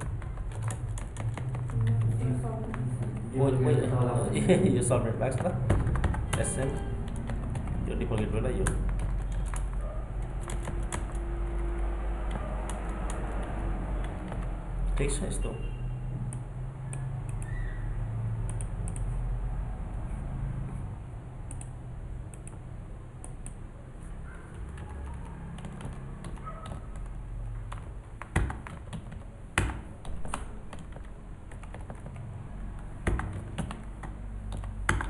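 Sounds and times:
computer keyboard typing: 0.0 - 4.0, 5.2 - 15.3, 16.3 - 17.6, 18.4 - 19.2, 21.4 - 23.6, 24.5 - 35.0.

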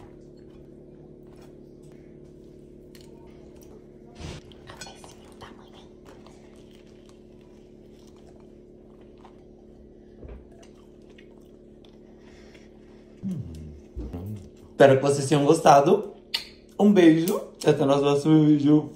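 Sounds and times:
steady low hum: 0.0 - 18.9
biting and chewing bread: 6.0 - 12.8.

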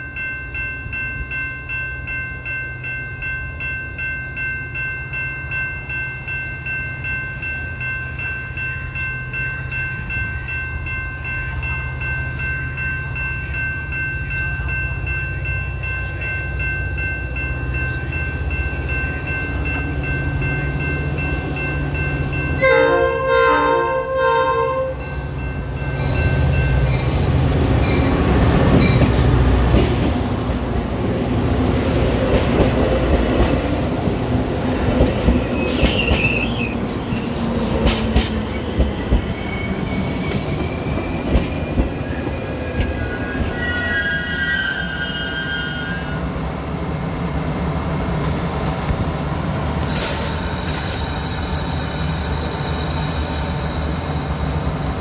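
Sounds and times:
crossing bells ringing: 0.0 - 46.5
diesel train rumble: 8.2 - 55.0
train horn blasts: 22.6 - 25.2
train wheel noise: 25.2 - 55.0.

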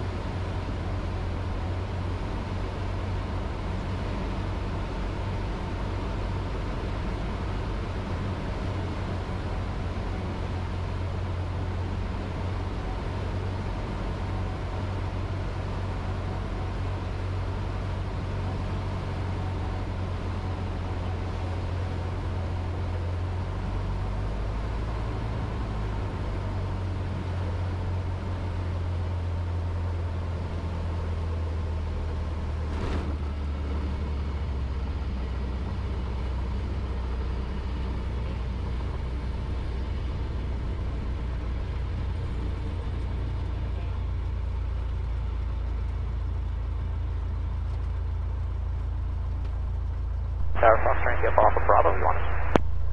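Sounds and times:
airplane engine drone in cabin: 0.0 - 29.9, 46.1 - 52.9.

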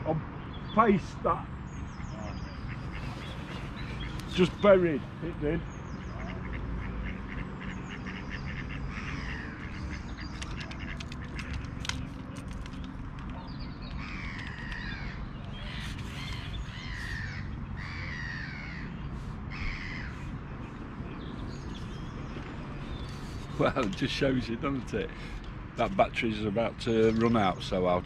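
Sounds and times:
harsh downward-sliding bird calls: 2.0 - 5.4, 6.0 - 20.3
quick bird ticks: 9.7 - 16.6.

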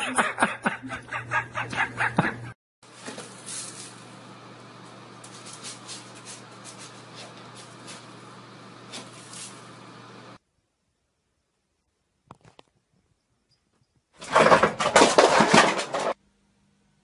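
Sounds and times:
steady low hum: 0.0 - 12.2
cat scraping litter: 2.8 - 10.0.

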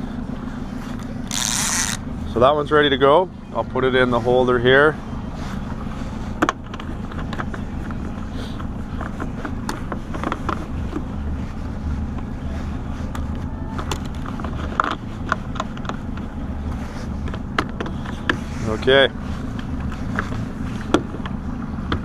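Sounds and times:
boat motor running: 0.0 - 22.0.

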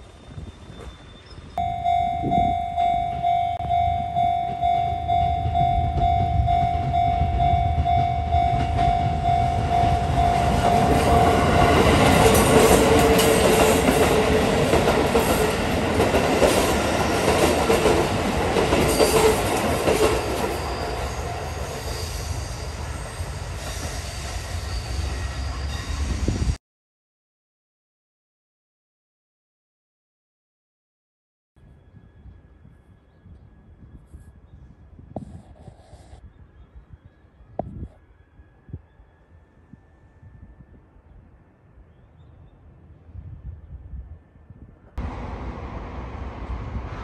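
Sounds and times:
electric train passing: 0.0 - 26.6, 45.0 - 47.0
level crossing bell ringing: 1.6 - 11.8.

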